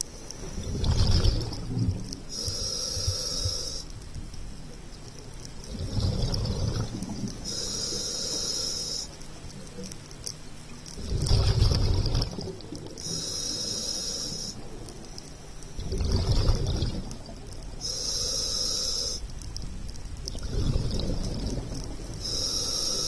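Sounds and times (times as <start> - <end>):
regulator hiss on inhale: 0.0 - 10.2, 12.7 - 23.0
bubbling exhale underwater: 0.6 - 2.2, 5.7 - 7.6, 11.0 - 13.0, 15.8 - 17.5, 20.4 - 22.5.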